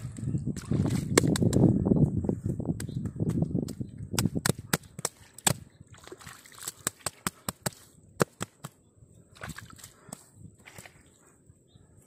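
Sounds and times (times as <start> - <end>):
water sloshing: 5.1 - 7.8.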